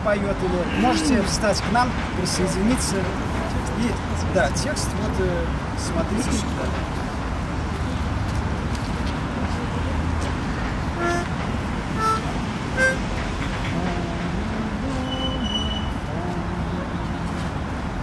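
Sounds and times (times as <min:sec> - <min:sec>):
city traffic: 0:00.0 - 0:18.0
short high toots: 0:12.0 - 0:13.1
man humming low notes: 0:13.7 - 0:15.1.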